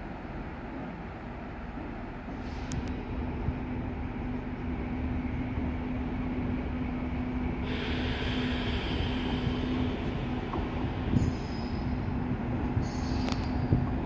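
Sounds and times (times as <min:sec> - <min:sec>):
train hum and rumble: 0:00.0 - 0:14.0.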